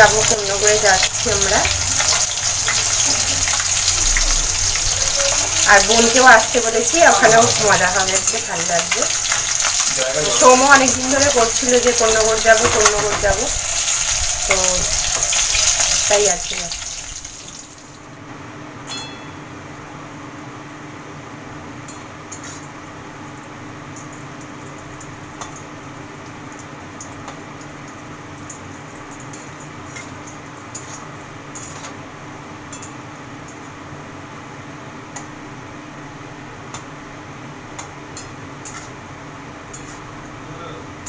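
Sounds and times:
food sizzling in oil: 0.0s - 18.1s
spatula scraping wok: 1.1s - 10.5s.

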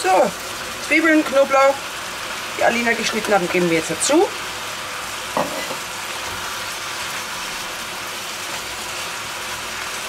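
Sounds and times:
meat and onions sizzling in oil: 0.0s - 10.0s
spatula scraping pan: 5.3s - 7.5s.

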